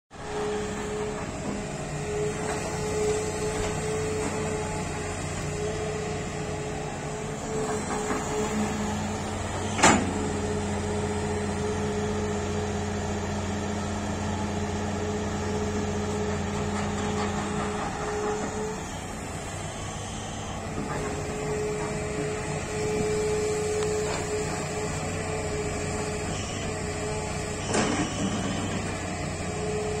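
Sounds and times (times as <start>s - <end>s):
excavator diesel engine: 0.1s - 30.0s
hydraulic whine: 0.1s - 30.0s.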